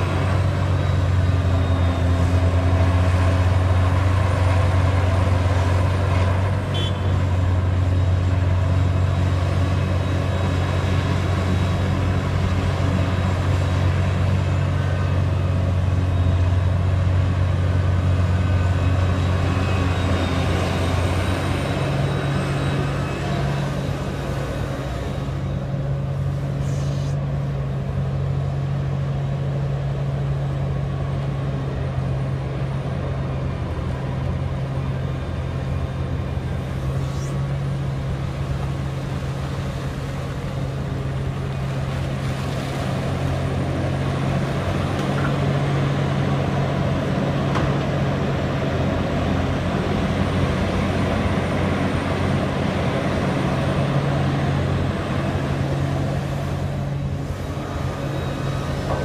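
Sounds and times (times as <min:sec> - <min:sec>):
excavator diesel engine running: 0:00.0 - 0:59.0
faint high whine: 0:36.1 - 0:38.6.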